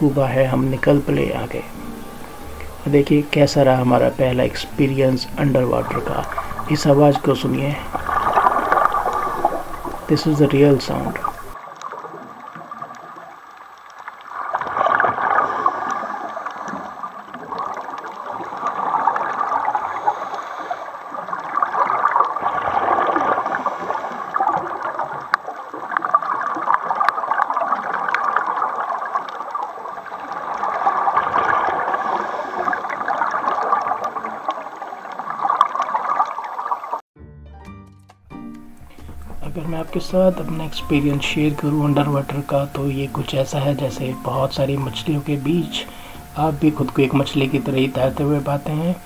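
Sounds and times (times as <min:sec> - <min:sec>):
gurgling exhaled bubbles: 0:00.0 - 0:37.0
regulator breathing underwater: 0:01.6 - 0:02.9, 0:06.2 - 0:06.8, 0:07.8 - 0:10.1, 0:15.2 - 0:17.2, 0:19.7 - 0:21.2, 0:31.7 - 0:33.2, 0:38.8 - 0:39.4, 0:45.8 - 0:46.4.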